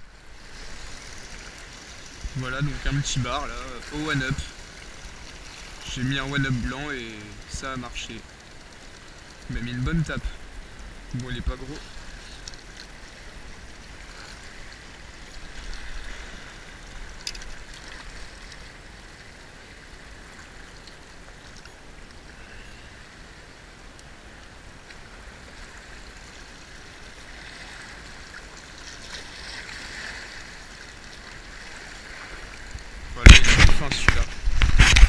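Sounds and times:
small waves lapping on rocky shore: 0.0s - 35.0s
sharp click: 33.2s - 35.0s.

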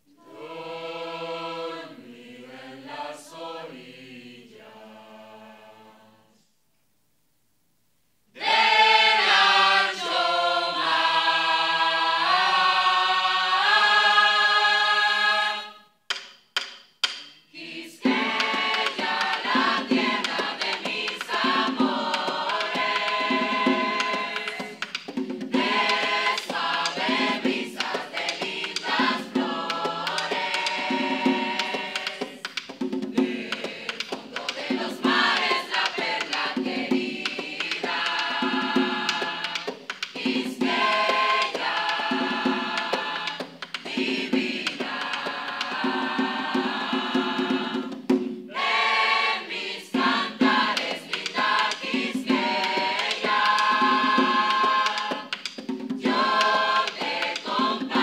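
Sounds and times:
mixed choir singing: 0.1s - 6.4s, 8.3s - 15.9s, 17.5s - 58.0s
drum steady beat: 18.0s - 58.0s.

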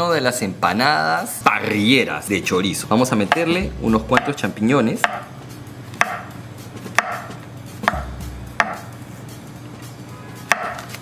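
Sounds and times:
knife striking cutting board: 3.3s - 4.4s, 5.0s - 5.3s, 6.0s - 8.9s, 10.4s - 11.0s.

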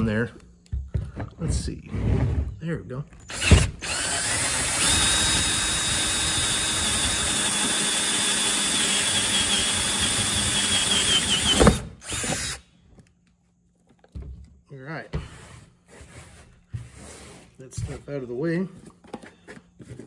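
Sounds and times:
cordless drill boring through plastic: 3.2s - 12.6s.

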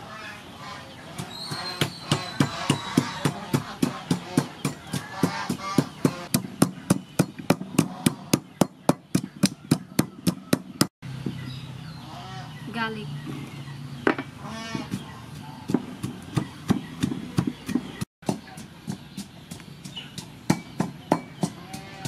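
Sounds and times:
wooden pestle pounding in mortar: 1.2s - 10.9s, 14.2s - 22.0s.

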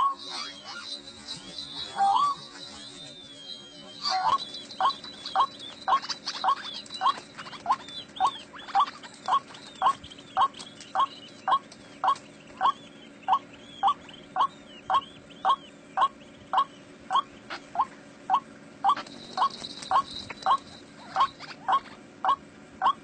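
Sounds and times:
bird repeating short notes: 0.0s - 12.8s
faint higher bird notes: 0.0s - 22.0s.

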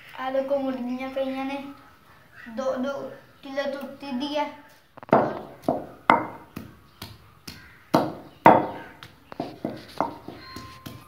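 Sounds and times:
pestle pounding in stone mortar: 5.1s - 11.0s.

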